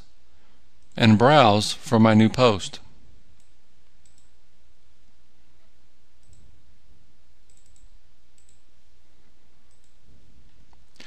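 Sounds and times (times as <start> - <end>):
computer mouse clicking: 3.4 - 4.4, 6.2 - 6.5, 7.4 - 8.7, 9.7 - 10.0.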